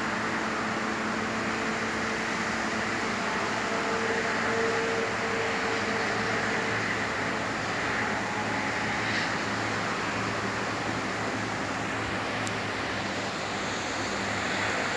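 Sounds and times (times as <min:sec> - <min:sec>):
steady rain hiss: 0:05.4 - 0:14.9.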